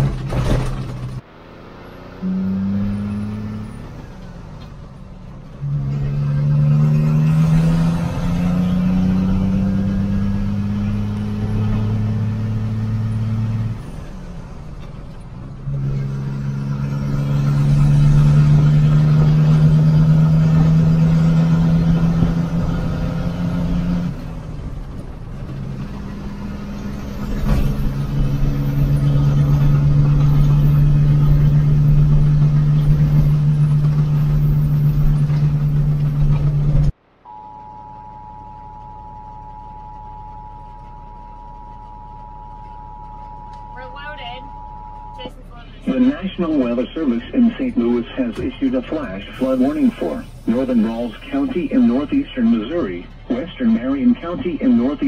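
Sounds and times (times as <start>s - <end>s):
truck diesel engine droning: 0.0s - 55.0s
two-tone emergency alert tone: 37.3s - 45.3s.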